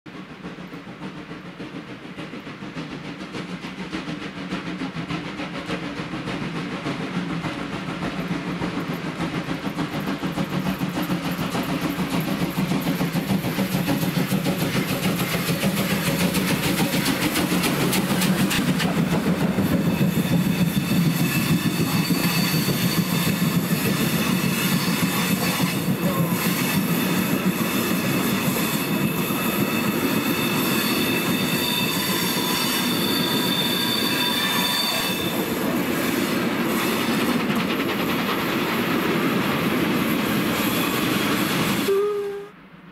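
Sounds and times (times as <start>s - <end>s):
steam locomotives chuffing: 0.1s - 42.7s
high wheel squeal: 19.4s - 37.4s, 40.4s - 42.4s.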